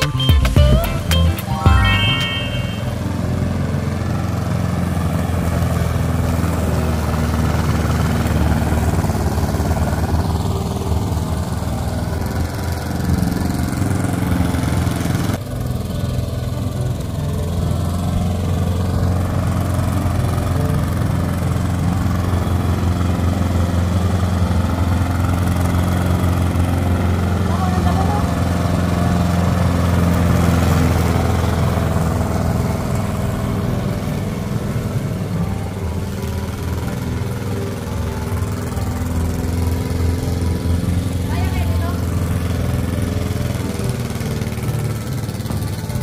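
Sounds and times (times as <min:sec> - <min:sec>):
lawn mower engine droning: 0:00.0 - 0:46.0.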